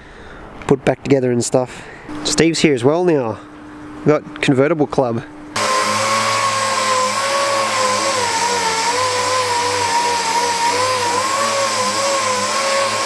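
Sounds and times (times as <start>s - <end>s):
orbital sander whining: 5.6s - 13.0s.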